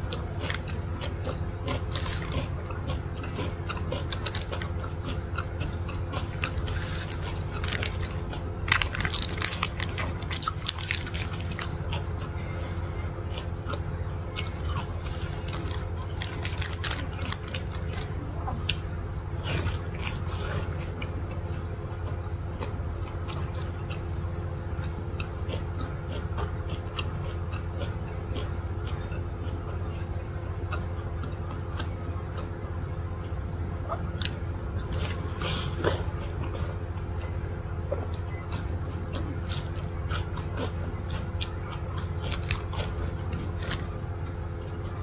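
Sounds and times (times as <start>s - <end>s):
person chewing: 0.0s - 45.0s
steady low hum: 0.0s - 45.0s
wet tearing of food: 6.1s - 12.0s, 14.8s - 18.2s, 42.0s - 44.4s
paper wrapper crinkling: 6.5s - 11.8s, 15.2s - 18.2s.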